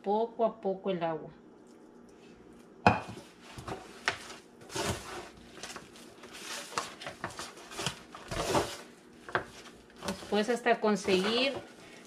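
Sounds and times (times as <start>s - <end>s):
dough squishing: 2.5s - 12.0s
foil pan crinkling: 3.5s - 12.0s.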